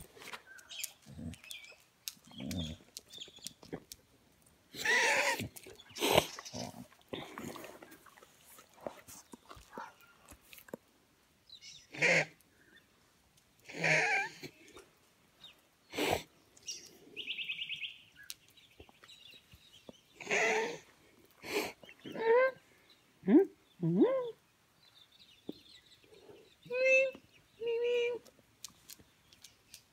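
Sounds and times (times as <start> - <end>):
dog vocalizing: 0.9 - 3.2.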